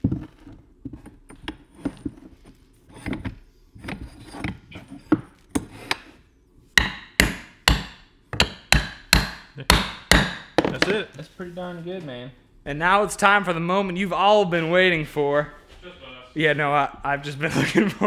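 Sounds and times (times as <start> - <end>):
mallet hammering on metal: 6.8 - 10.7.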